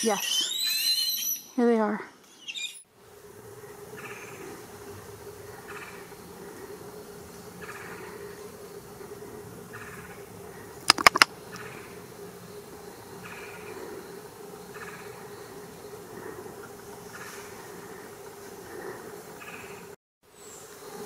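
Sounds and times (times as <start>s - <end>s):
steady low forest drone: 2.9s - 21.0s
sharp clicks: 10.9s - 11.3s.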